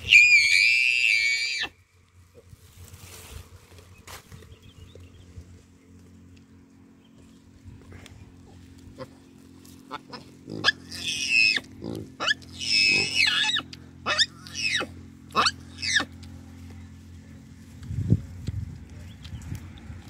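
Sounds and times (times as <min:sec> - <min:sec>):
baboons giving shrill calls: 0:09.9 - 0:16.2.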